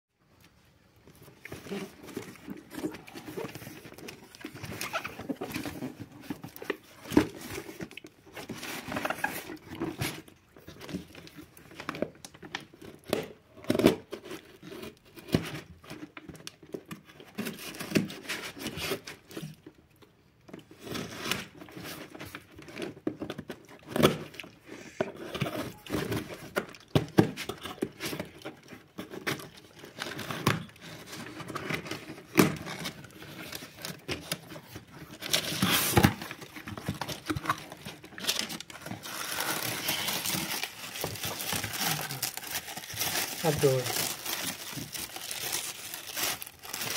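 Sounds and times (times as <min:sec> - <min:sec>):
packing tape tearing: 0:01.5 - 0:10.2, 0:20.8 - 0:46.9.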